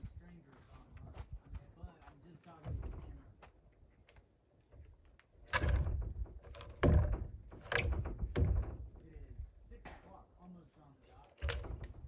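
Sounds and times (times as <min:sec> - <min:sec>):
heavy wooden thuds: 0:02.5 - 0:03.6, 0:04.8 - 0:10.2, 0:11.3 - 0:12.0.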